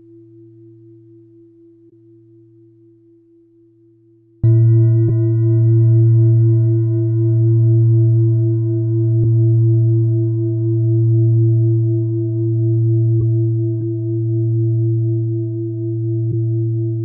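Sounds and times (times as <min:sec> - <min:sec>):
deep sustained ringing tone: 0:04.4 - 0:17.0.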